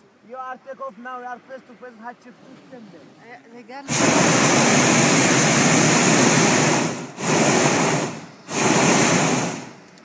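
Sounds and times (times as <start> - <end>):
propane burner rushing: 3.9 - 10.0.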